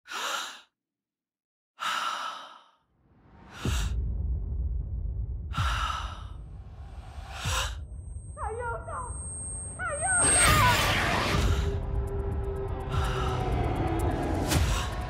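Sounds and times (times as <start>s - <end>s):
heavy low rumble: 3.1s - 15.0s
loud whooshing hits: 10.6s - 15.0s.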